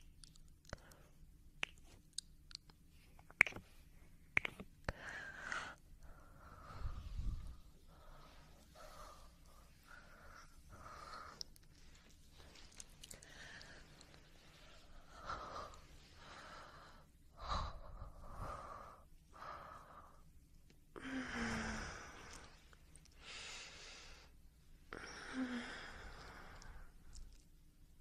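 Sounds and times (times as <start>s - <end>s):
person breathing heavily: 4.9s - 20.2s, 21.0s - 27.0s.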